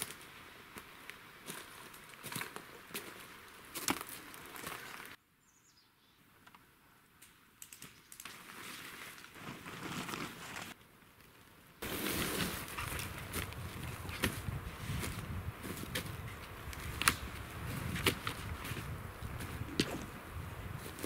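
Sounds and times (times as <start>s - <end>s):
outdoor ambient noise: 0.0s - 21.0s
faint high chirp: 5.4s - 6.3s.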